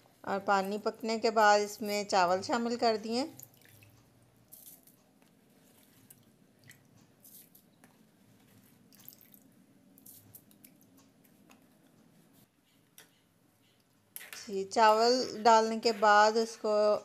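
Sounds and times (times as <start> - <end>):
small pops and drips: 3.3 - 5.4, 6.0 - 8.0, 8.9 - 11.7.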